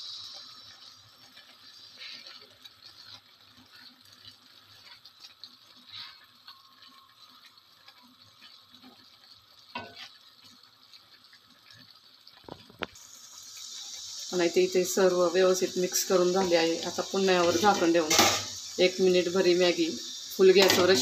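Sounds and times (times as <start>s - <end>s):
steady hiss: 0.0s - 2.6s, 12.5s - 21.0s
spatula scraping pan: 1.7s - 7.0s, 9.8s - 10.2s, 15.8s - 18.9s, 20.5s - 21.0s.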